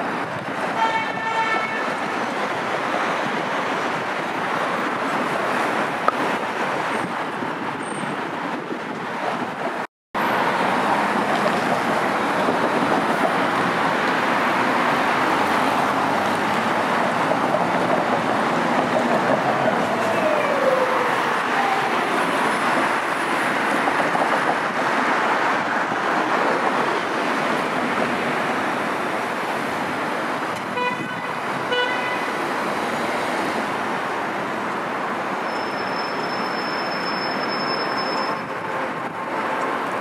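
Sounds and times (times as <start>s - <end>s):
cars passing: 0.0s - 40.0s
car horn honks: 30.6s - 32.3s.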